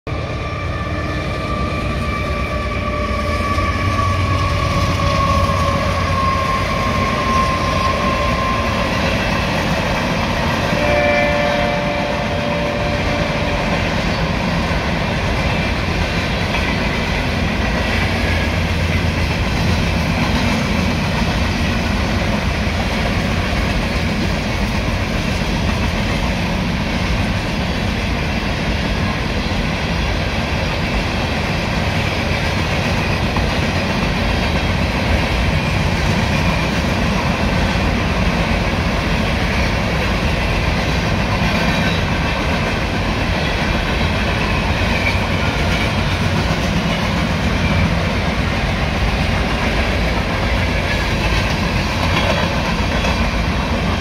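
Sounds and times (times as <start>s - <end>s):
locomotive horn: 0.1s - 9.5s, 10.5s - 14.2s.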